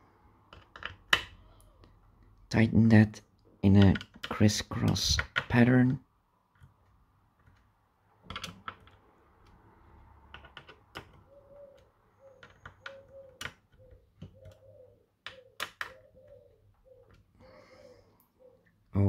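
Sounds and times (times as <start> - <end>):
bird cooing: 11.2 - 18.8.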